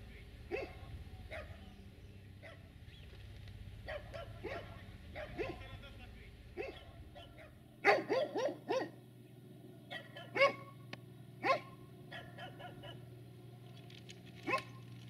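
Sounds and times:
dog barking: 0.5s - 1.7s, 2.4s - 2.7s, 3.8s - 5.8s, 6.6s - 9.0s, 9.9s - 10.8s, 11.4s - 13.1s, 14.4s - 14.8s.

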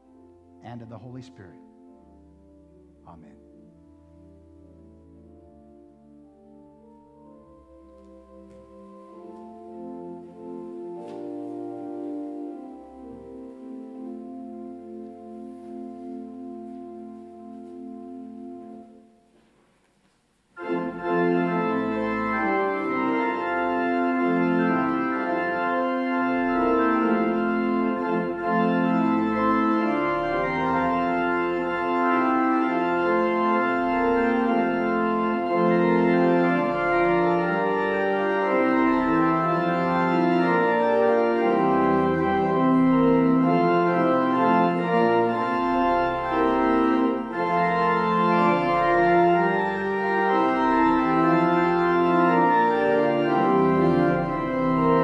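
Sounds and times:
church organ playing chords: 0.0s - 19.5s, 20.6s - 55.0s.

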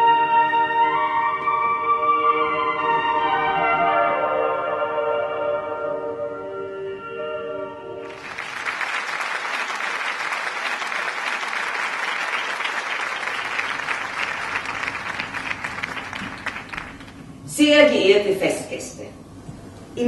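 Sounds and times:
audience applauding: 8.0s - 17.2s.

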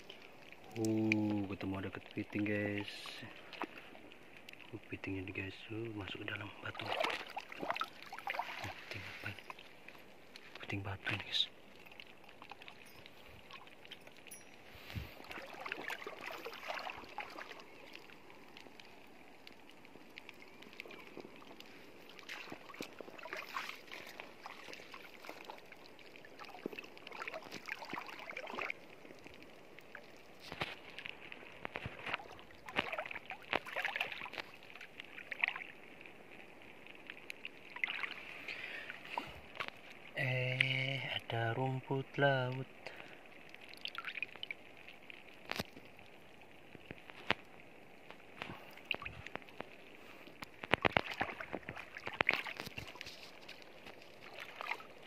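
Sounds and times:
seawater sloshing and splashing: 6.6s - 10.7s, 11.7s - 19.0s, 20.4s - 35.9s, 37.4s - 40.1s, 43.7s - 46.0s, 46.7s - 55.0s.

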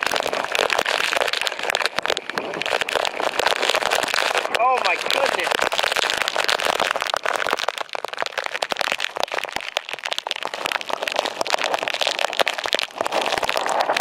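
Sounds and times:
raindrops popping on microphone: 0.0s - 14.0s
heavy rain hissing: 3.3s - 5.7s.

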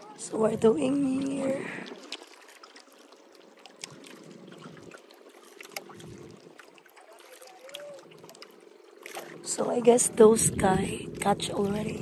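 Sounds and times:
faint steady low hum: 0.0s - 12.0s
water lapping against boat hull: 0.0s - 12.0s
faint drips and ticks: 0.9s - 9.6s.

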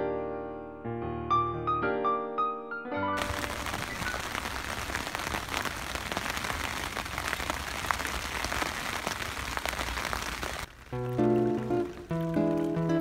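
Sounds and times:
rain falling: 3.2s - 13.0s
raindrops ticking: 3.2s - 13.0s.

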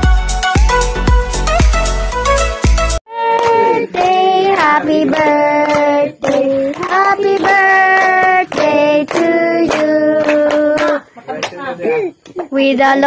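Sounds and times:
child and women singing together: 3.1s - 11.1s.

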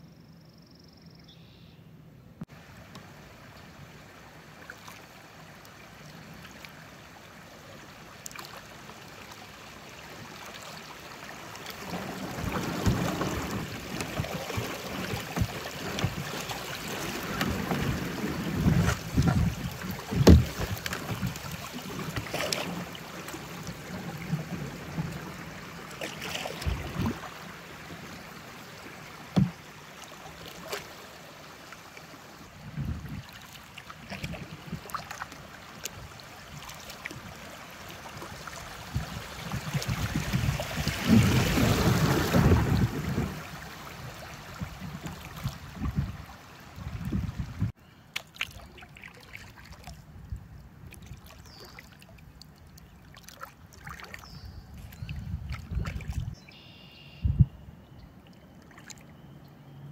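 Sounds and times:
water rushing and splashing: 2.5s - 57.1s.

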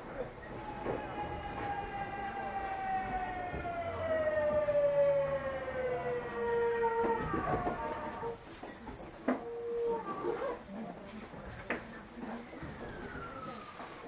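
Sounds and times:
train motors whining: 0.1s - 8.4s
running gear rumble: 0.2s - 9.1s.

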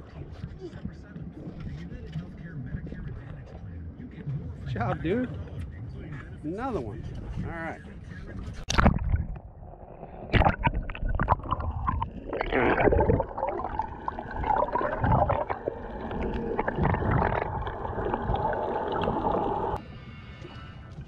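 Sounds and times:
muffled underwater gurgling: 7.0s - 19.8s
water splashes: 8.6s - 19.8s.

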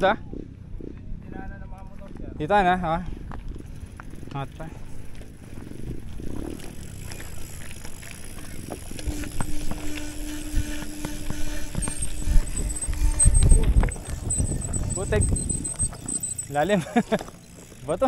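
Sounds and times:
bicycle rattling and knocking: 0.0s - 18.0s
steady hum: 3.2s - 18.0s.

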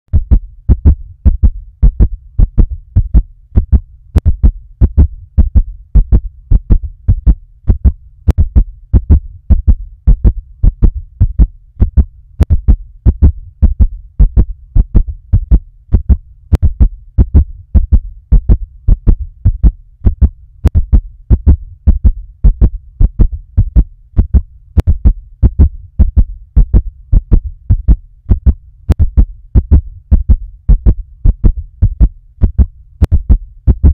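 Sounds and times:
heartbeat thumps: 0.1s - 33.9s.

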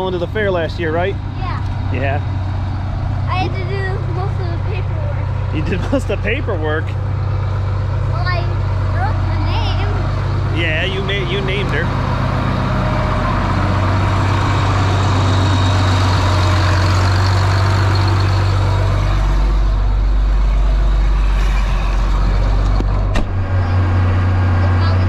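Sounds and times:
tractor diesel engine running: 0.0s - 25.0s.

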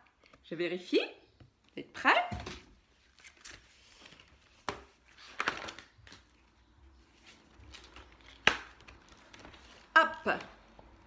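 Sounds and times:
pages flipping: 2.9s - 10.7s
page slapping: 3.1s - 6.3s, 7.2s - 10.6s.

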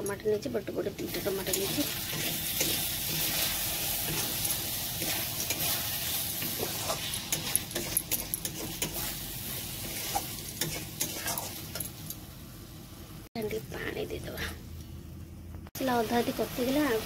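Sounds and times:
tomatoes sizzling in pan: 0.0s - 14.8s, 15.7s - 17.0s
metal spatula scraping pan: 1.4s - 9.2s, 9.8s - 11.8s.

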